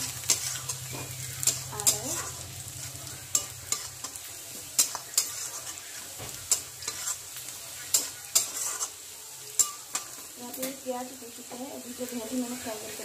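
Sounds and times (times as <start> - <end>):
spatula scraping and knocking pan: 0.0 - 9.0
onions sizzling in oil: 0.0 - 13.0.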